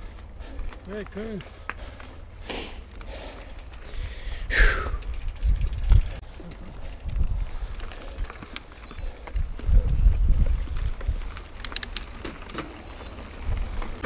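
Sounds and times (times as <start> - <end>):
bike tyre and frame rumble: 0.0 - 14.0
freewheel ratchet ticking: 4.8 - 6.2.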